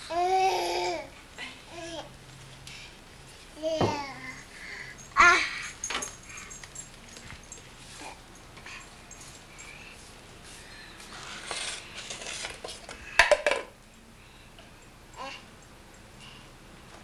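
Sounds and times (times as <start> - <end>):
cups clattering together: 12.1 - 13.7.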